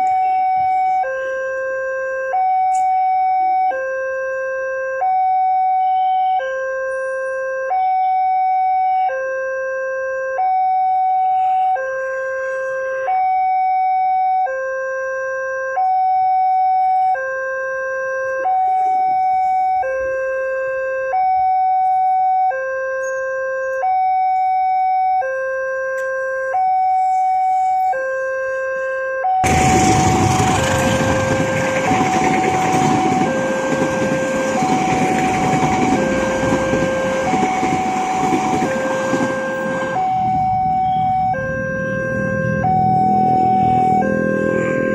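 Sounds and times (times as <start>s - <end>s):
level crossing two-tone alarm: 0.0s - 44.9s
passing train wheel noise: 29.4s - 40.7s.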